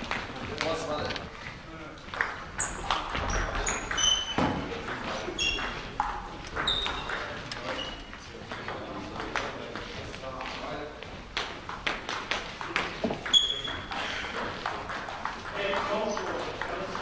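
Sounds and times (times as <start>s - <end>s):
table tennis balls clicking: 2.1s - 9.9s, 11.3s - 17.0s.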